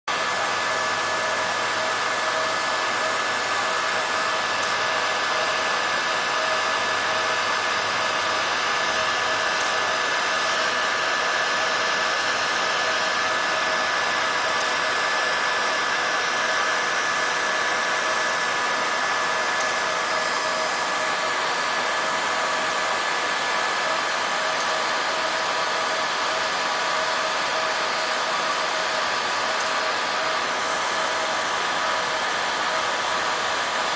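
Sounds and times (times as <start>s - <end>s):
fan motor whine: 0.1s - 33.9s
hot air gun blowing: 0.1s - 33.9s.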